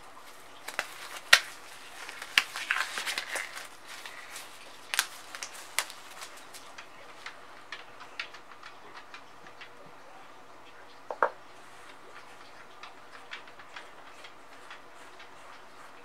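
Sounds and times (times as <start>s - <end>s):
glove rustling: 0.0s - 7.2s.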